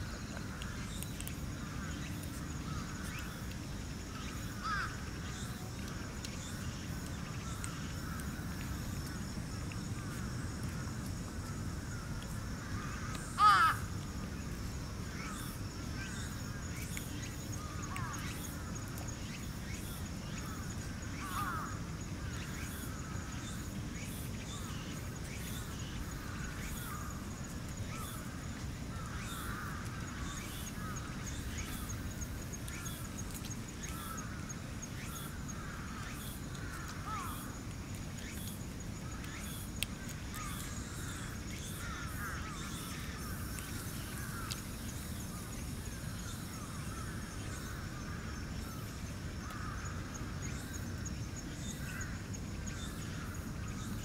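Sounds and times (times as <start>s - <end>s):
crow cawing: 4.6s - 5.0s, 12.8s - 13.9s, 21.2s - 21.7s, 36.6s - 37.5s.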